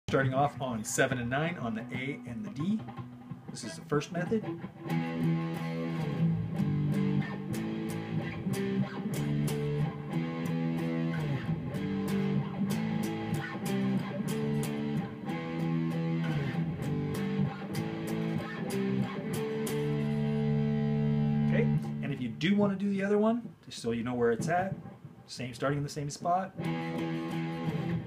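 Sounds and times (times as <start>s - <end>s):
electric guitar power chord riff: 2.5s - 22.0s, 26.6s - 28.0s.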